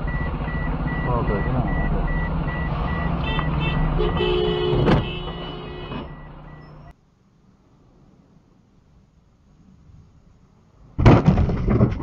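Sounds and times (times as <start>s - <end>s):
rapid high beeping: 0.0s - 3.9s
street traffic: 0.0s - 11.1s
horn honk: 3.0s - 6.2s.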